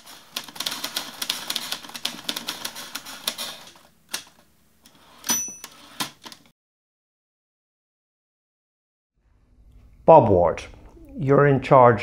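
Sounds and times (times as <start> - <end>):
typewriter carriage bell ding: 5.2 - 6.0.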